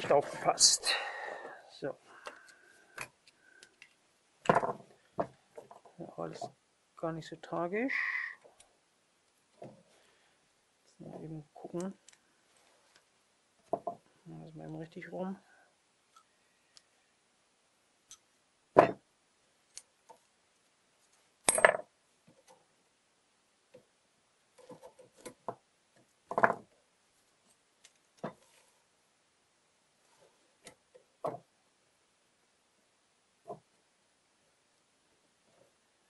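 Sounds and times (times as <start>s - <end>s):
pliers set down: 21.5s - 21.8s.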